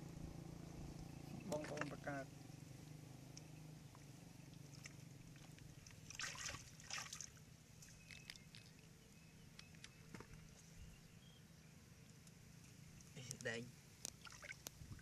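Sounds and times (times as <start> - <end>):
water splashes: 4.5 - 8.9, 14.1 - 15.0.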